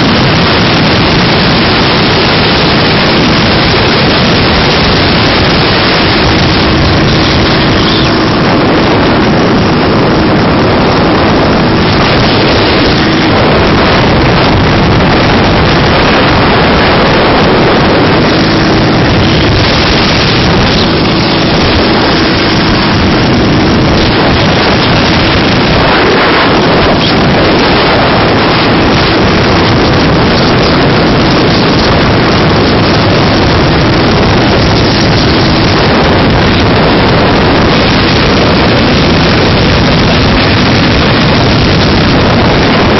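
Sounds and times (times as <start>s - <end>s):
motorcycle engine running: 0.0s - 42.9s
wind buffeting microphone: 0.0s - 42.9s.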